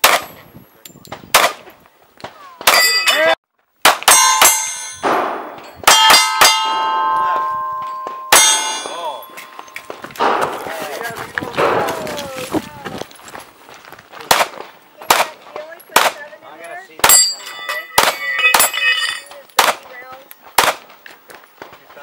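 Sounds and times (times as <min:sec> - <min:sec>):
pistol shots: 0:00.0 - 0:00.3, 0:01.3 - 0:01.7, 0:03.8 - 0:10.8, 0:11.6 - 0:12.0, 0:14.3 - 0:15.4, 0:16.0 - 0:16.2, 0:19.6 - 0:19.9, 0:20.6 - 0:21.0
steel targets clanging and ringing: 0:02.7 - 0:03.4, 0:04.0 - 0:10.6, 0:17.0 - 0:19.8.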